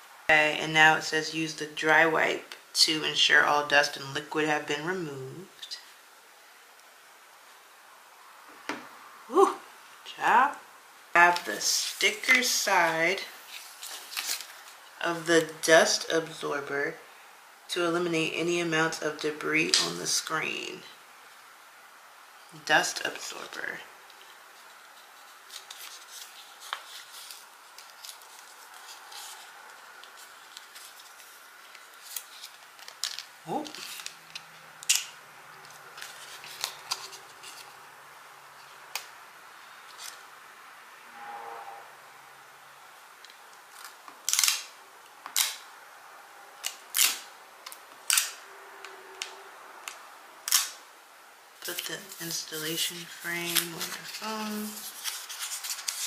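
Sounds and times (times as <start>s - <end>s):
paper and plastic film crinkling: 11.3s - 14.9s, 24.1s - 37.8s, 51.6s - 56.0s.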